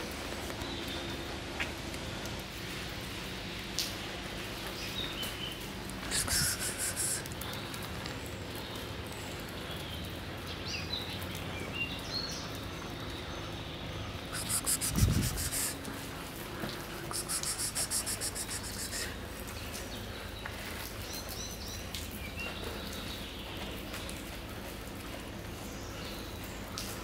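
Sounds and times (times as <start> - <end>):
birds chirping: 4.6 - 24.4.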